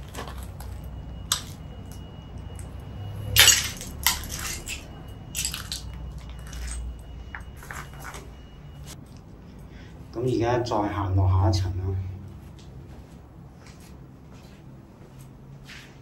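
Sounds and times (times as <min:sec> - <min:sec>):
footsteps crunching on debris: 0:00.0 - 0:02.7, 0:03.3 - 0:09.0.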